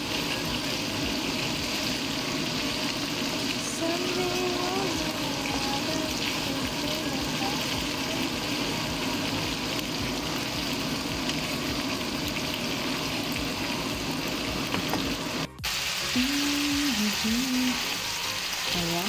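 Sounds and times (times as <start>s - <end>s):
food sizzling in a frying pan: 0.0s - 19.0s.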